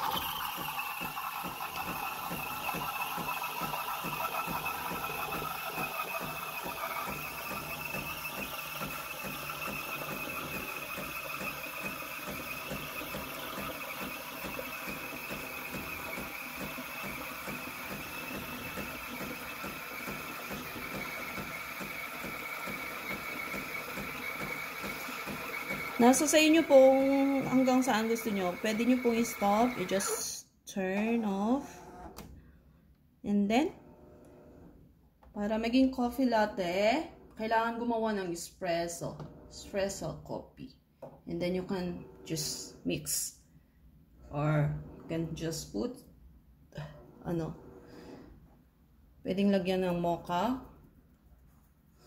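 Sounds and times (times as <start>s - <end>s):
steam wand frothing milk: 0.0s - 30.4s.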